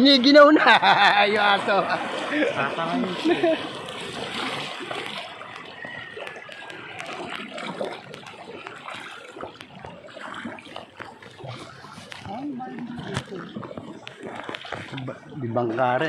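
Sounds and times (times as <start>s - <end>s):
river current rushing: 0.0s - 12.3s
paddle splashing in water: 0.0s - 16.0s.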